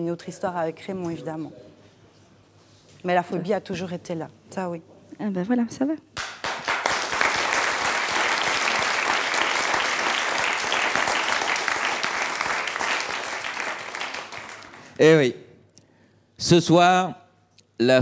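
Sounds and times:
audience applauding: 0:06.2 - 0:15.2.

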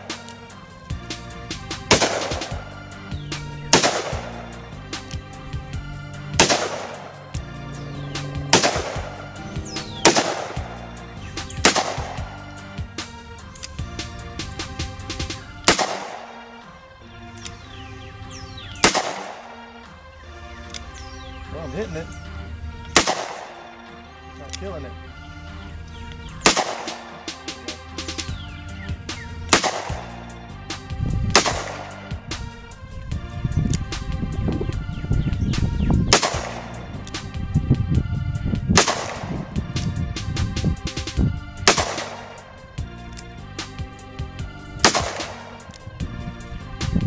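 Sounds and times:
music with a steady beat: 0:00.0 - 0:16.7, 0:26.0 - 0:47.0
handgun shots: 0:01.9 - 0:02.6, 0:03.7 - 0:05.2, 0:06.3 - 0:07.2, 0:08.4 - 0:09.1, 0:09.9 - 0:10.8, 0:11.4 - 0:12.4, 0:15.6 - 0:16.4, 0:18.8 - 0:19.6, 0:22.9 - 0:23.6, 0:26.4 - 0:27.5, 0:29.5 - 0:30.2, 0:31.3 - 0:32.2, 0:36.1 - 0:37.2, 0:38.8 - 0:39.4, 0:41.6 - 0:42.4, 0:44.8 - 0:45.9.

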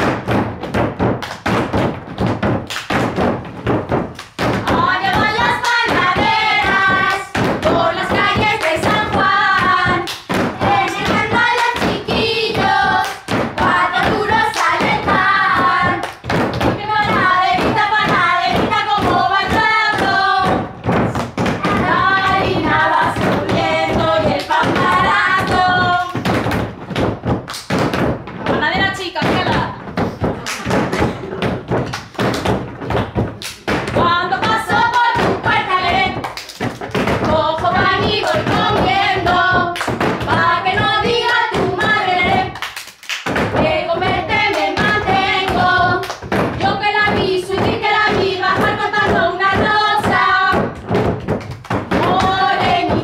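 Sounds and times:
hand claps: 0:00.0 - 0:53.0
palms slapping wooden tabletops: 0:00.0 - 0:53.0
woman and girls singing: 0:04.4 - 0:26.6, 0:33.7 - 0:42.7, 0:43.5 - 0:53.0.

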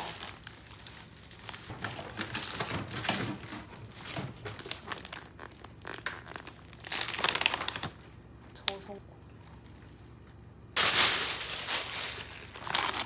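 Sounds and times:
plastic packaging crinkling: 0:00.0 - 0:08.2, 0:10.8 - 0:13.0.

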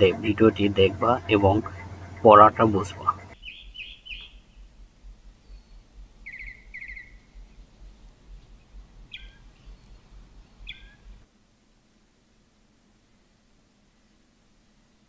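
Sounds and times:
birds chirping: 0:00.0 - 0:11.2
low rumble: 0:00.0 - 0:11.2.

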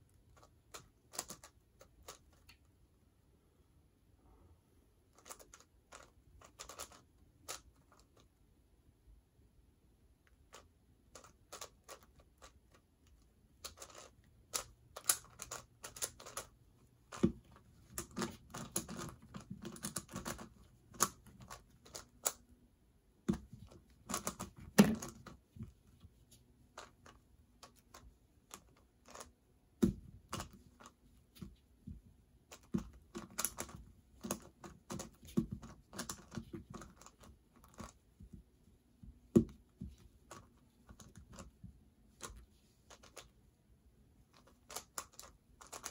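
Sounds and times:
puzzle cube clicking: 0:13.6 - 0:22.5, 0:23.3 - 0:25.4, 0:32.5 - 0:38.0.

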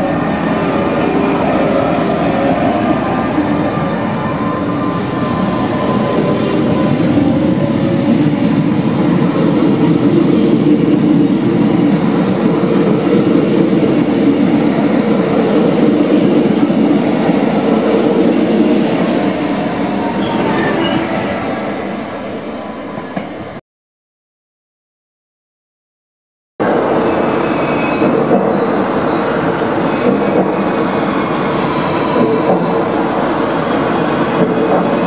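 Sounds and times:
electric train passing: 0:00.0 - 0:23.6.

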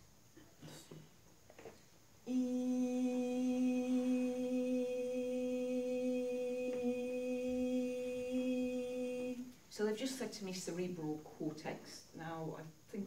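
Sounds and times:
woman humming a long note: 0:02.3 - 0:09.5.

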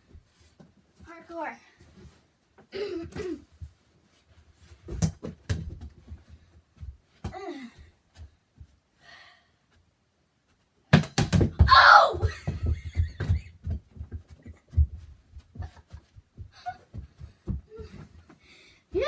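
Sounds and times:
knocks and thumps: 0:10.9 - 0:18.2.

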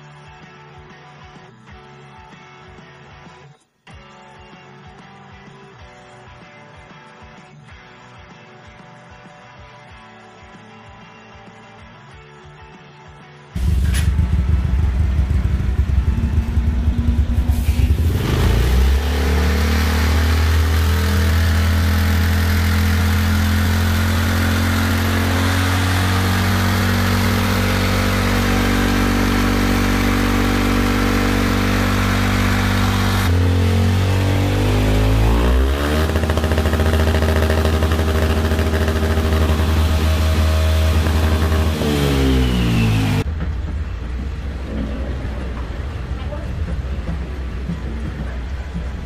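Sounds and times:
scooter engine revving: 0:13.6 - 0:43.3.

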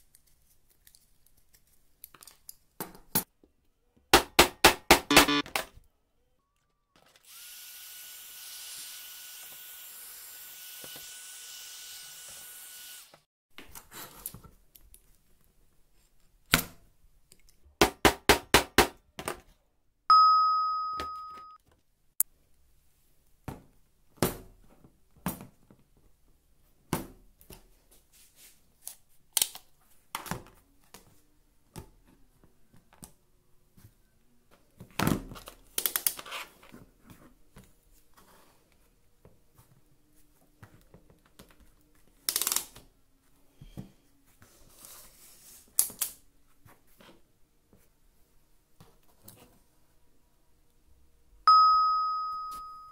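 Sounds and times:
heat gun blowing: 0:07.3 - 0:13.2
ringing ding: 0:20.1 - 0:21.6, 0:51.5 - 0:52.9.

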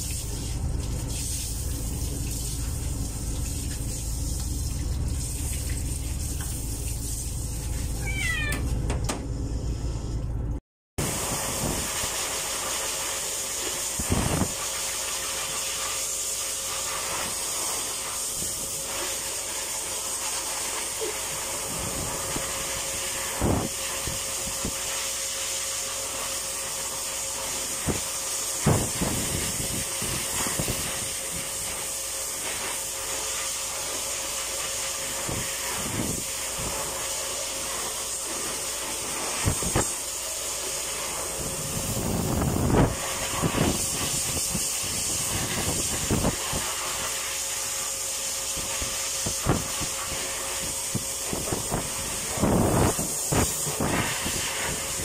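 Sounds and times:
pet dryer blowing air: 0:11.0 - 0:55.0.

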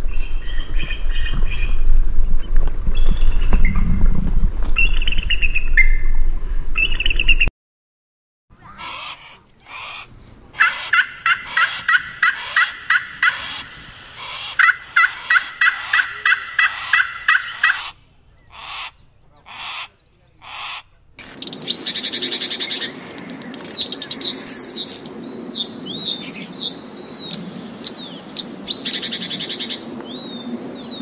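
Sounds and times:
wind noise: 0:00.0 - 0:07.5, 0:10.1 - 0:17.6, 0:21.2 - 0:31.0
grouse calling: 0:08.8 - 0:29.9
bird chick peeping: 0:21.2 - 0:31.0.

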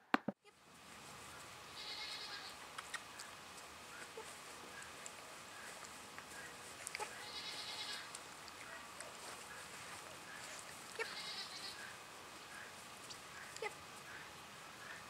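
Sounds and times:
high-pitched animal calls: 0:01.8 - 0:03.3, 0:10.4 - 0:15.0.

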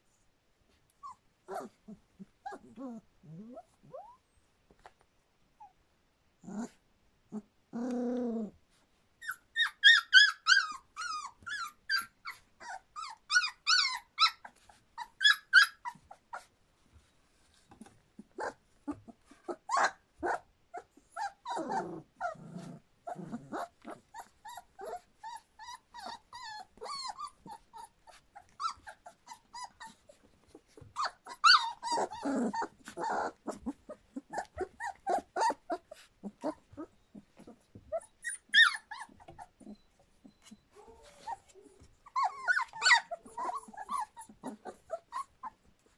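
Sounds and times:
puppies yipping and squeaking: 0:01.0 - 0:04.2, 0:09.2 - 0:16.5, 0:17.7 - 0:45.9
puppy crying: 0:01.0 - 0:04.2, 0:09.2 - 0:16.5, 0:18.3 - 0:45.6
puppy growling: 0:01.4 - 0:04.2, 0:06.4 - 0:08.6, 0:17.7 - 0:45.9.

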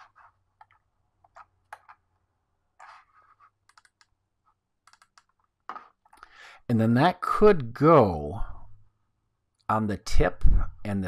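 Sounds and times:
computer keys clicking: 0:03.6 - 0:04.2, 0:04.8 - 0:05.4.

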